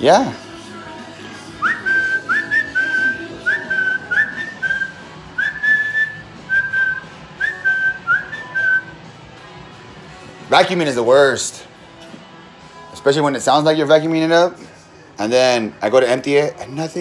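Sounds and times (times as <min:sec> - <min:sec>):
man whistling a slow tune: 0:01.4 - 0:09.1.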